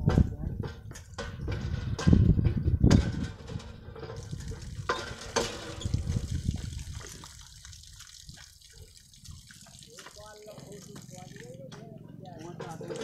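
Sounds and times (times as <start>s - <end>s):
water sloshing in basin: 3.5s - 13.0s.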